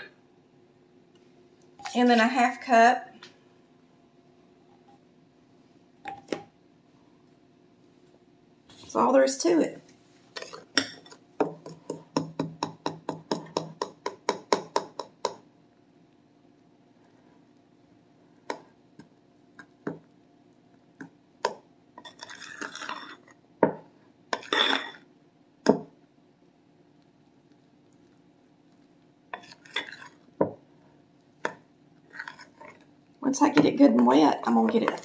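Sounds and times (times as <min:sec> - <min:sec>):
fork scraping bowl: 0:10.3 - 0:11.8, 0:22.0 - 0:23.4, 0:24.4 - 0:25.0, 0:29.3 - 0:30.3, 0:32.1 - 0:32.9.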